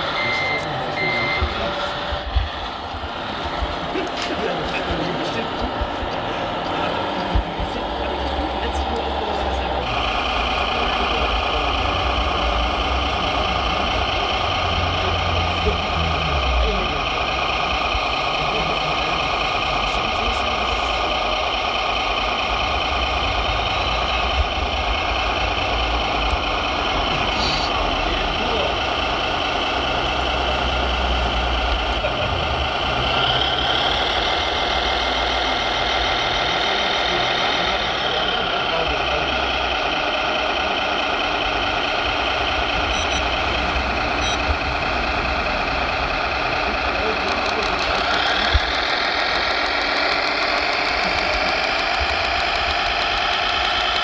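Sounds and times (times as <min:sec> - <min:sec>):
model truck diesel engine: 0:00.0 - 0:54.0
short high beeps: 0:00.1 - 0:01.7.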